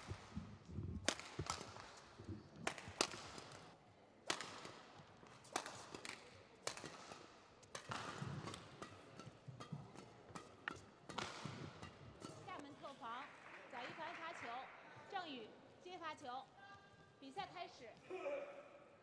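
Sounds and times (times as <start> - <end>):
shuttlecock struck by racket: 1.0 - 12.7.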